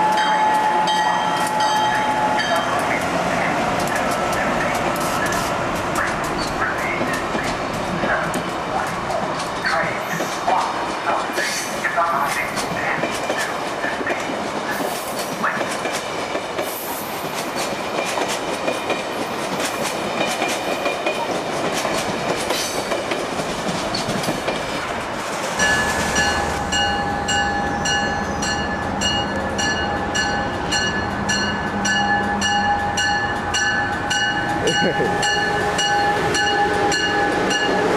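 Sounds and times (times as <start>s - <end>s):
train wheels rumbling on rail: 0.0s - 37.9s
electric train whine and hum: 21.6s - 37.9s.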